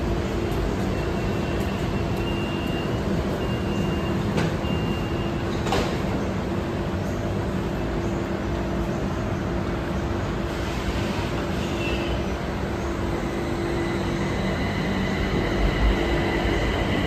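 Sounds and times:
electric train humming: 0.0 - 17.0
high door warning beeps: 1.0 - 5.7
train doors shutting knock: 4.2 - 6.2.

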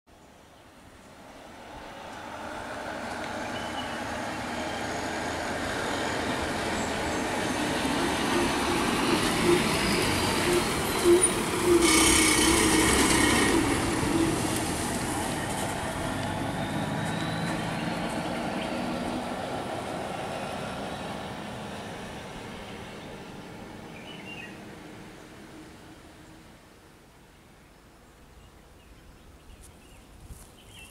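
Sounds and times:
bus diesel engine running: 1.3 - 25.6.

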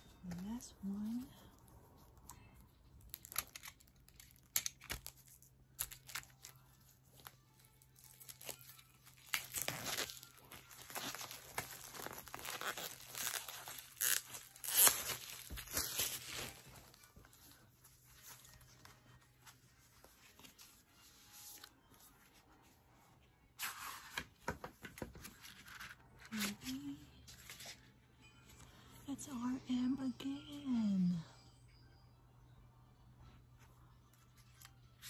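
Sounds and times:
plastic shrink-wrap crinkling: 3.1 - 17.1.

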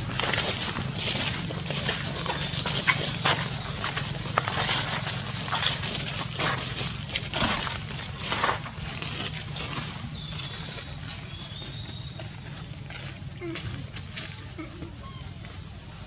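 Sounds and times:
monkeys rustling dry leaves: 0.0 - 16.0
monkey cries: 13.4 - 15.9.

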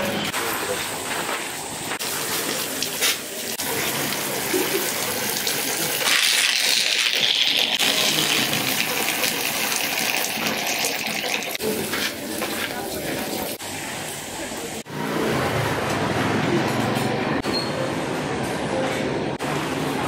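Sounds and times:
water pouring: 2.0 - 13.6.

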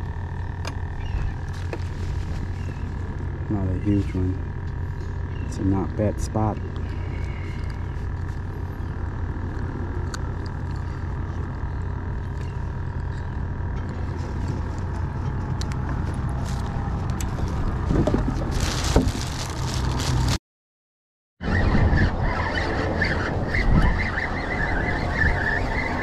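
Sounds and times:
low rumble with hum: 0.0 - 20.4, 21.4 - 26.0
plastic bag crinkling: 1.4 - 3.2, 16.3 - 20.4.

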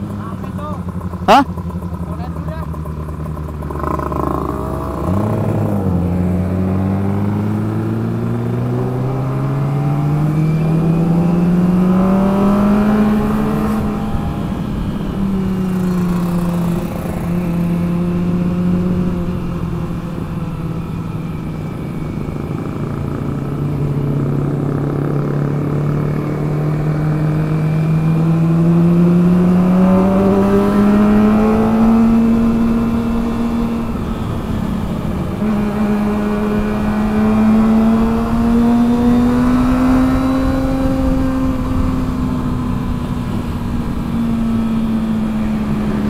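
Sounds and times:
motorcycle engine: 0.0 - 46.0.

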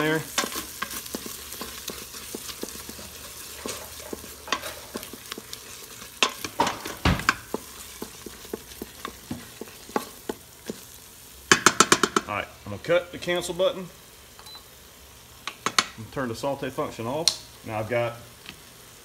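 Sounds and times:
wooden spoon scraping pot: 0.0 - 11.0
steady sizzle: 0.0 - 19.0.

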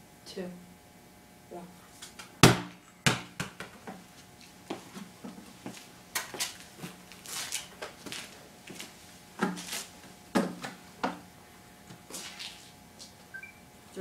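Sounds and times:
ball bouncing on concrete: 2.4 - 4.0.

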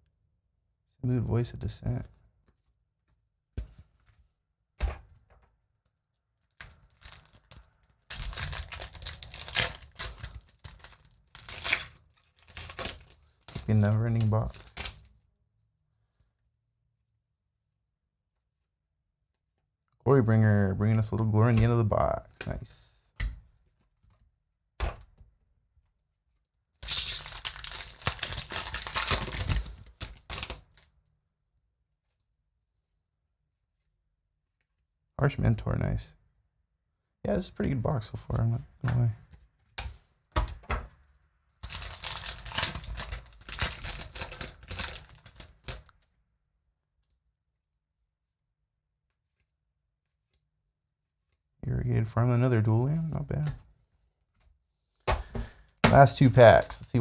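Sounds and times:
foil wrapper crinkling and tearing: 6.4 - 15.2, 26.8 - 31.0, 41.6 - 46.2.

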